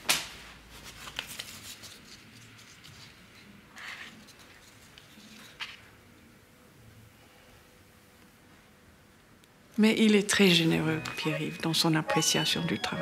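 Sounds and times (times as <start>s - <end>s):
paper rustling: 0.2s - 5.9s.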